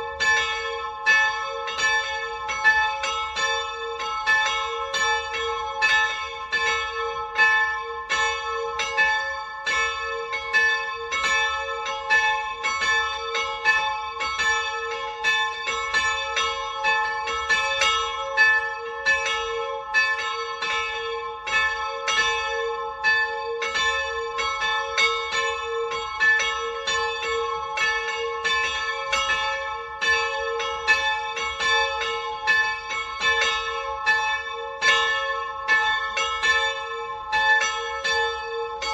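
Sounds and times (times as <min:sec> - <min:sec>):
church bells ringing: 0:00.0 - 0:38.9.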